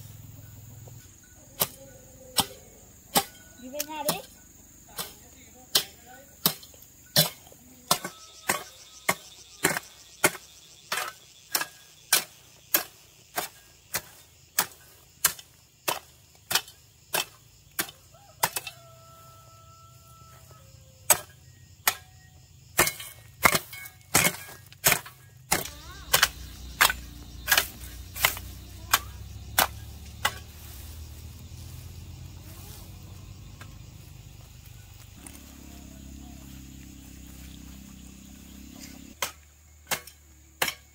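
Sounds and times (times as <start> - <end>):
high insect drone: 0.0 - 40.9
rhythmic chopping with hand tool: 1.4 - 18.8, 21.0 - 31.5, 37.5 - 40.9.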